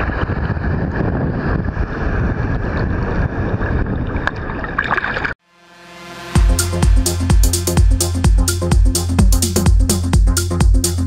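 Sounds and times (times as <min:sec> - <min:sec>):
music: 0:05.4 - 0:11.0.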